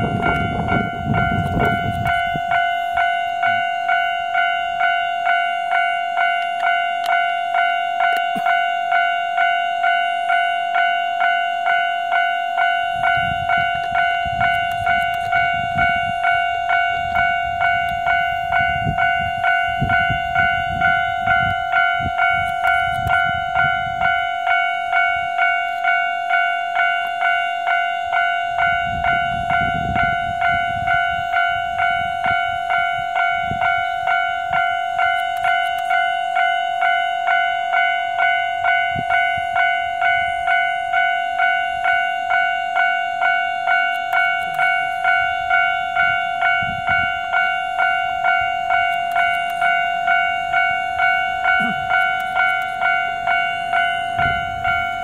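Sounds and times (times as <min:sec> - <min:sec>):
level crossing bell ringing: 0:00.0 - 0:55.0.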